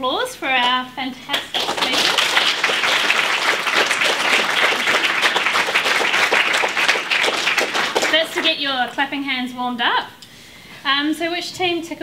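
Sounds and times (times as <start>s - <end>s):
audience applauding: 1.4s - 9.0s.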